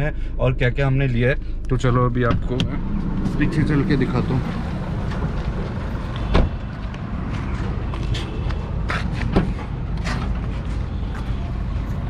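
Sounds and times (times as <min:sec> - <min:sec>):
low traffic rumble: 0:00.0 - 0:12.0
car door shutting: 0:05.0 - 0:06.6.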